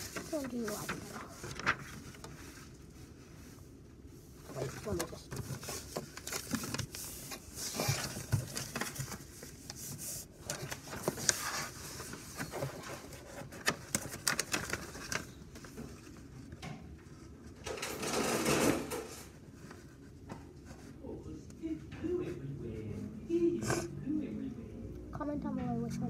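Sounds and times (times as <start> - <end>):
paper rustling: 0.0 - 3.6, 4.4 - 21.0.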